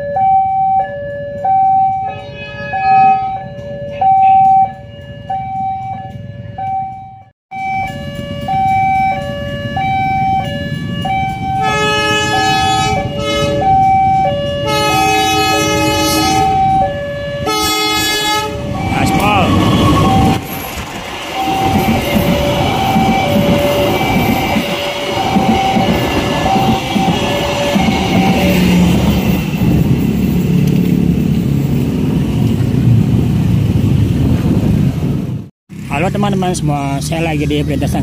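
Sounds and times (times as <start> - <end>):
level-crossing two-tone alarm: 0.0 - 20.6, 21.3 - 29.3
locomotive horn blasts: 1.9 - 4.8, 11.0 - 20.4.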